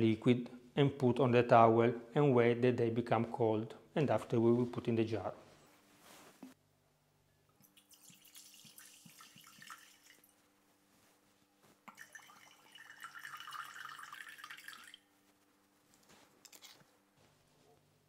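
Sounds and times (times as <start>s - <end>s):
liquid pouring into metal pot: 7.6s - 10.3s, 11.9s - 15.0s
wine fizzing: 7.6s - 10.3s, 11.9s - 15.0s.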